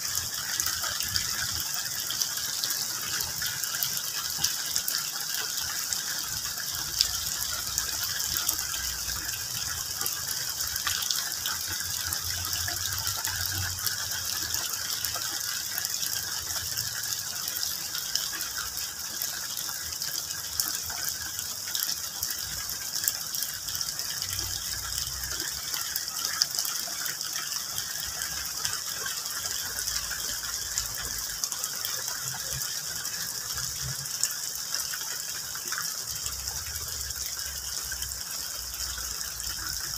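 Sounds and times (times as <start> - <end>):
rain pattering on leaves: 0.0 - 39.9
sharp water drips: 0.0 - 39.9.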